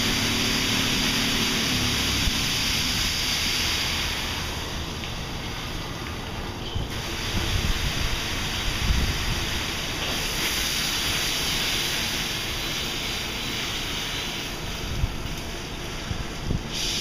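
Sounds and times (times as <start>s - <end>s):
water blasted off car: 0.0s - 5.0s, 6.9s - 15.2s
air dryers blowing: 0.0s - 17.0s
wind buffeting microphone: 7.2s - 9.5s, 16.0s - 16.8s.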